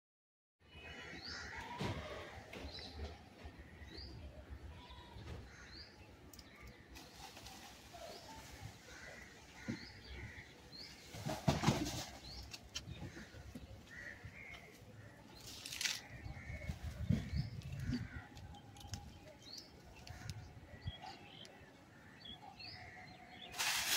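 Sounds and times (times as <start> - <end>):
loud rustling: 23.5 - 23.9.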